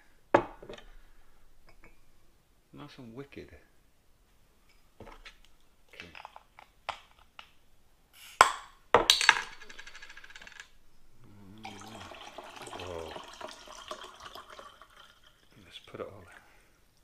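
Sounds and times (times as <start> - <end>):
liquid pouring into glass: 11.2 - 16.0.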